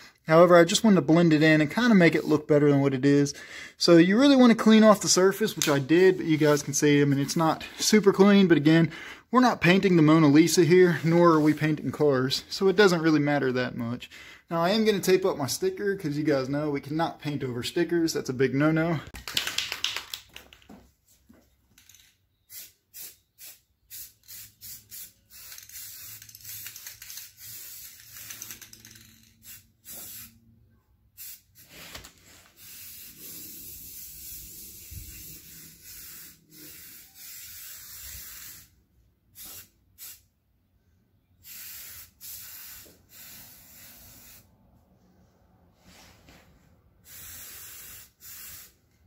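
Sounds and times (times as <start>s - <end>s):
aerosol spray can hissing: 22.5s - 28.6s, 29.4s - 30.4s, 32.5s - 38.7s, 39.4s - 40.2s, 41.4s - 44.4s, 47.0s - 48.8s.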